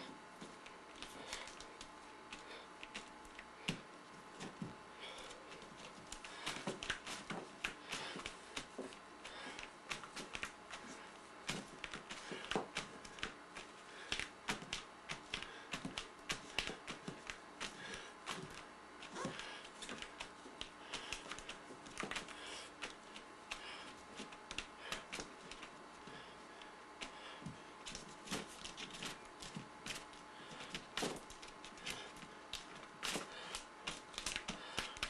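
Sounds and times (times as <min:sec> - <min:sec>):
fingertips tapping paint on canvas: 0:00.4 - 0:26.3.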